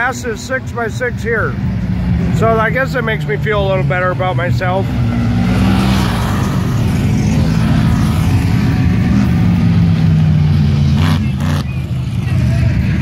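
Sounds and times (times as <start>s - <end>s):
vehicle engine speeding past: 4.8s - 13.0s.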